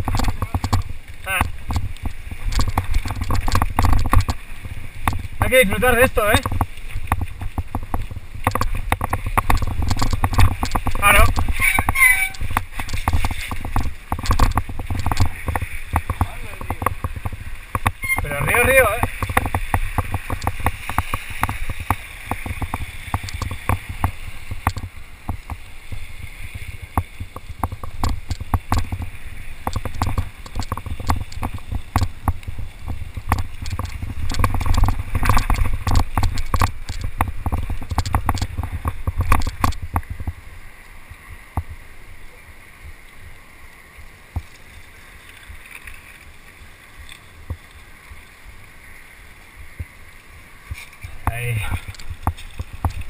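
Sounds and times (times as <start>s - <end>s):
bike clattering over rocks: 0.0s - 25.6s, 26.9s - 40.2s.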